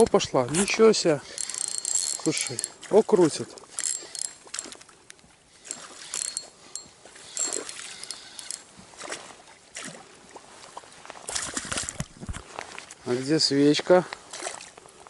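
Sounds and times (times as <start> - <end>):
fishing reel squeaks: 0.6 - 4.9, 5.5 - 8.7.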